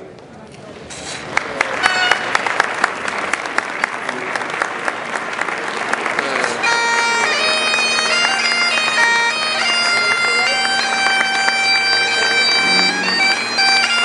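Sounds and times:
applause: 0:01.2 - 0:14.0
bagpipe drone: 0:06.4 - 0:14.0
bagpipe chanter melody: 0:06.6 - 0:14.0.

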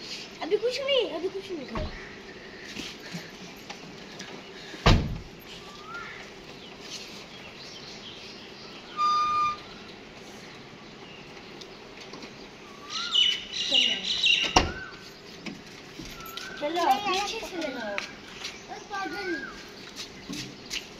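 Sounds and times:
loud thump: 0:04.8 - 0:05.3.

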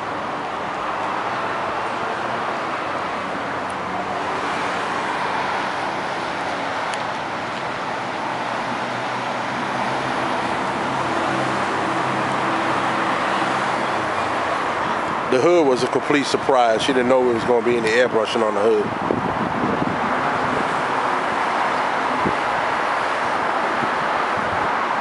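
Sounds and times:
traffic noise: 0:00.0 - 0:25.0.

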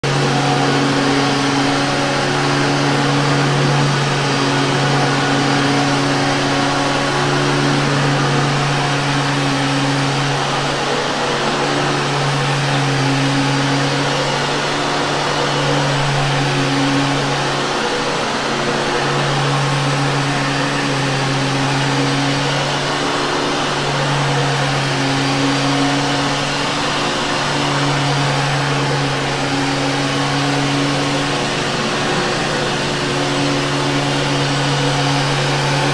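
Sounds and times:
vacuum cleaner running on carpet: 0:00.0 - 0:35.9.

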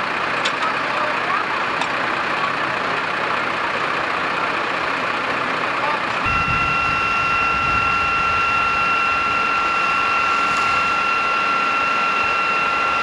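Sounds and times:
steady high-pitched tone: 0:06.2 - 0:13.0.

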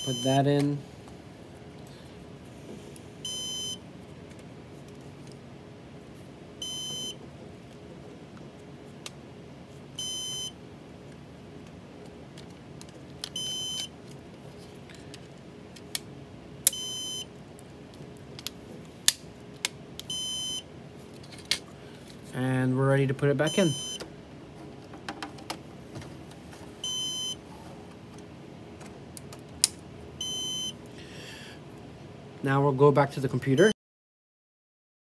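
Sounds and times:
alarm beeping: 0:00.0 - 0:00.4, 0:03.2 - 0:03.8, 0:06.6 - 0:07.2, 0:10.0 - 0:10.6, 0:13.4 - 0:13.9, 0:16.8 - 0:17.3, 0:20.1 - 0:20.6, 0:23.4 - 0:24.0, 0:26.8 - 0:27.4, 0:30.2 - 0:30.8
steady low hum: 0:00.0 - 0:33.7.

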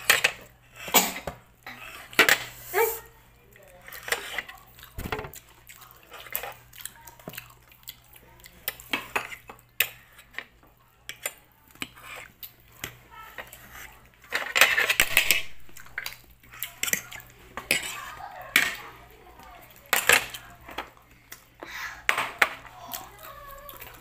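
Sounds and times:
chewing: 0:03.4 - 0:14.9, 0:15.6 - 0:21.6, 0:22.6 - 0:24.0.

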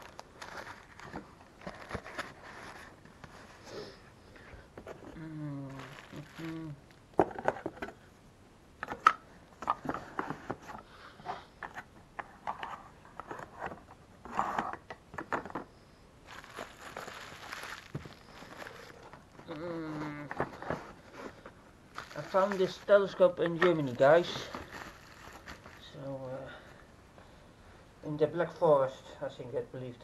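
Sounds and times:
bubble wrap crinkling: 0:00.0 - 0:03.2, 0:05.1 - 0:07.0, 0:16.2 - 0:21.3, 0:21.9 - 0:26.1
person humming: 0:05.1 - 0:06.9, 0:19.4 - 0:20.5.

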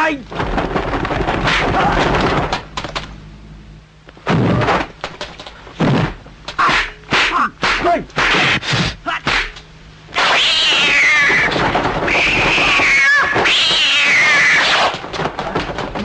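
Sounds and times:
punch and kick impacts: 0:05.8 - 0:09.6.

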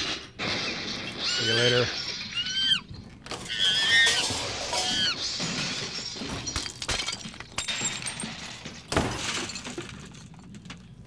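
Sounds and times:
shrill animal screeches: 0:00.4 - 0:05.8
crashing and breaking: 0:03.2 - 0:11.0.

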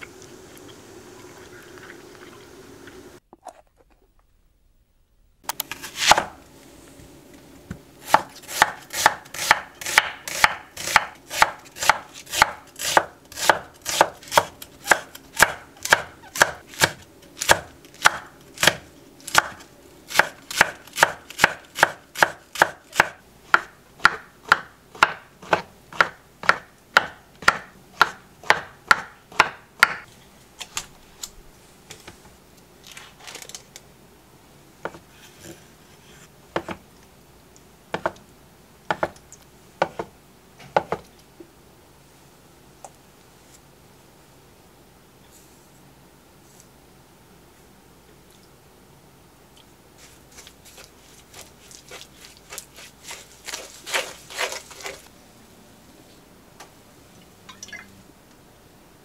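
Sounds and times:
knife chopping on wooden board: 0:08.0 - 0:30.0, 0:38.9 - 0:39.2.

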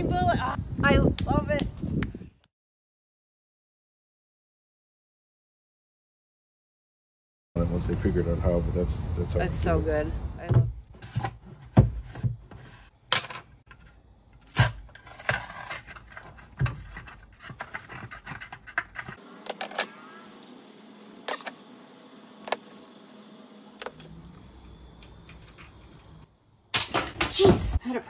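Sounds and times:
spoon scraping plastic jar: 0:15.0 - 0:19.2.

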